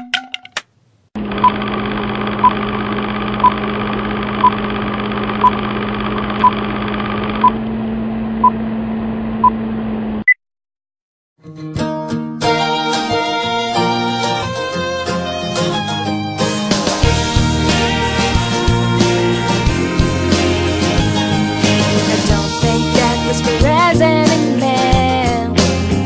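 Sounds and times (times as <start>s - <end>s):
film projector hum and rattle: 1.2s - 7.5s.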